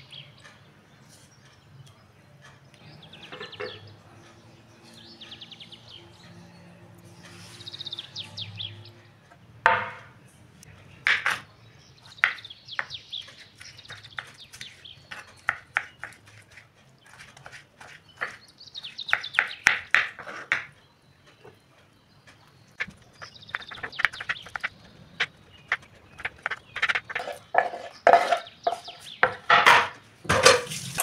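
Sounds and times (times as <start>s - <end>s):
knife chopping on wooden board: 13.6s - 18.4s, 19.1s - 20.7s
high chirping: 18.0s - 20.0s, 20.7s - 29.5s.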